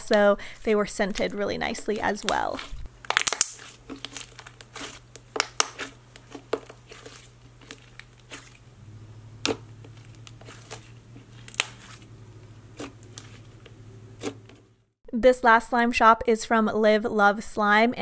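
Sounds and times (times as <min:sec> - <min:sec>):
slime squeezed by hand: 0:02.6 - 0:05.0.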